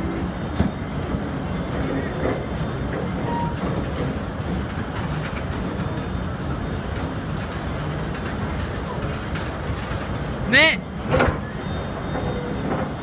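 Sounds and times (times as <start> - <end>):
excavator tracks rumbling: 0.0 - 13.0
brief squeak: 3.2 - 3.7, 11.3 - 12.9.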